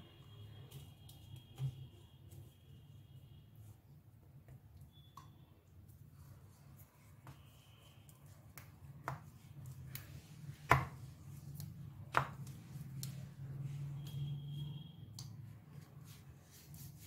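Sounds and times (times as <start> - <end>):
rolling pin rolling dough: 6.0 - 17.0.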